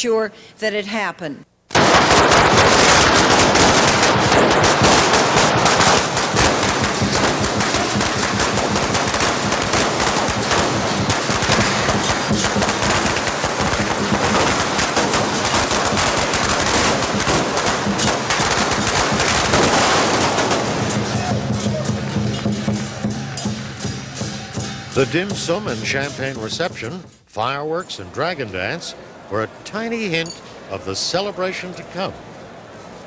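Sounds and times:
firecrackers crackling: 1.7s - 27.5s.

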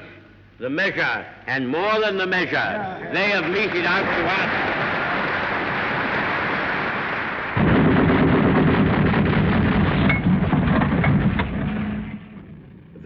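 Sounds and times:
anti-aircraft guns firing: 7.6s - 12.2s.

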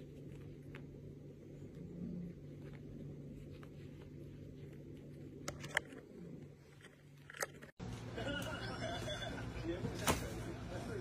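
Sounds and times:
soft rustling on towel: 0.0s - 5.4s.

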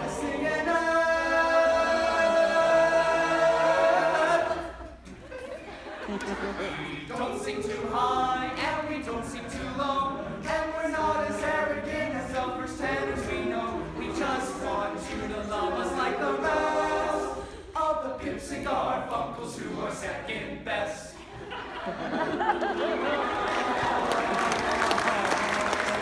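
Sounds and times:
male choir singing a cappella: 0.0s - 5.0s, 6.3s - 22.2s.

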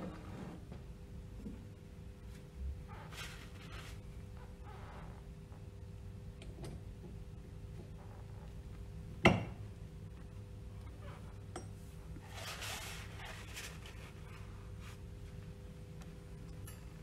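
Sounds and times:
tool scraping and rubbing: 12.2s - 14.1s.

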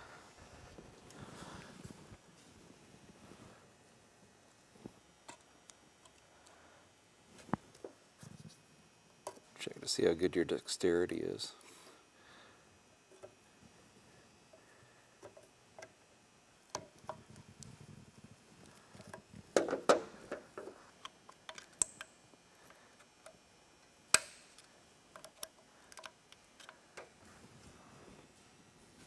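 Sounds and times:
small metal clicks and taps: 21.3s - 22.1s.

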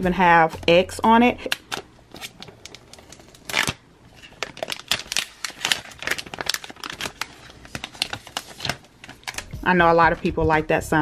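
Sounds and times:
plastic film crinkling: 1.5s - 9.6s.

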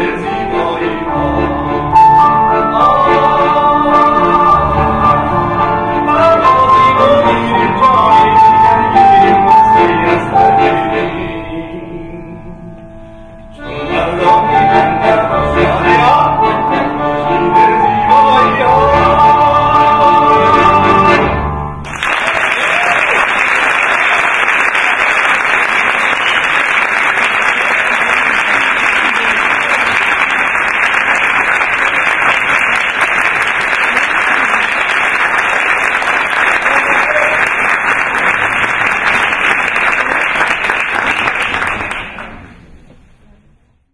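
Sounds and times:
accordion and piano song: 0.0s - 22.0s
audience applauding: 21.8s - 42.5s.

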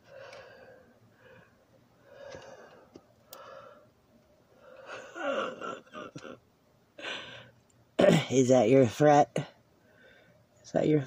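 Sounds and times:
person breathing: 0.0s - 3.9s, 4.5s - 5.2s, 7.0s - 7.6s, 9.8s - 10.5s.

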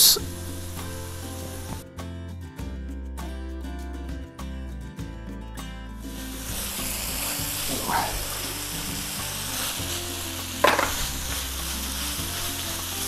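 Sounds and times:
vegetables sizzling in a wok: 0.0s - 1.8s, 6.1s - 13.0s
spatula knocking on wok: 10.6s - 11.2s.

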